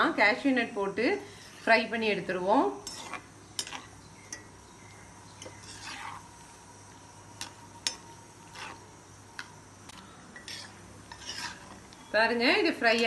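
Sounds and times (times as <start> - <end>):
nuts sizzling in oil: 0.0 - 13.0
skimmer scraping pot: 5.4 - 6.3, 7.4 - 8.9, 10.4 - 11.9.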